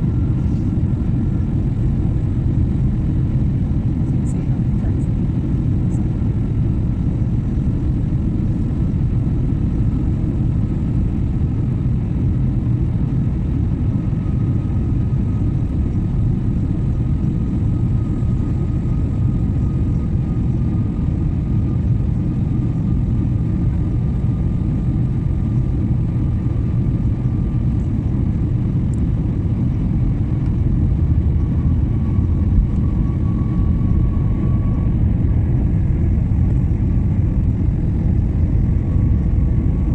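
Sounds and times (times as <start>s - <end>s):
airliner cabin rumble: 0.0s - 39.9s
faint high engine whine: 0.0s - 39.9s.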